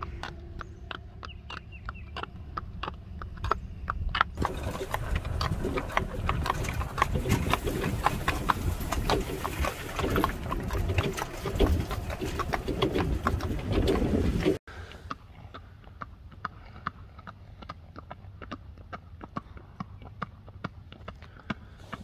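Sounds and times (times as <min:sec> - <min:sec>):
golf cart rumble: 0:00.0 - 0:14.6
wind noise: 0:00.0 - 0:14.6
hooves striking pavement: 0:00.0 - 0:22.0.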